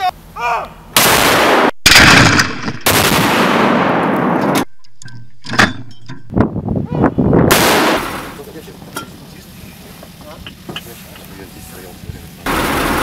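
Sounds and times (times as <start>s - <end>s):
field gun blasts with echo: 1.0s - 4.4s, 7.5s - 8.3s.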